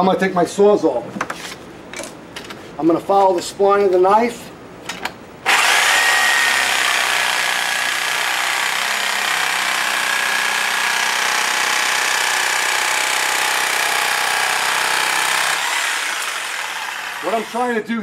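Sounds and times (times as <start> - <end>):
reciprocating saw cutting wood: 5.5 - 17.7.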